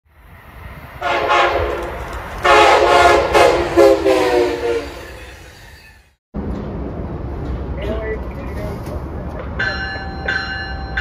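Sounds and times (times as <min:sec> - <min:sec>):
train air horn blasts: 0:01.0 - 0:01.8, 0:02.4 - 0:05.2.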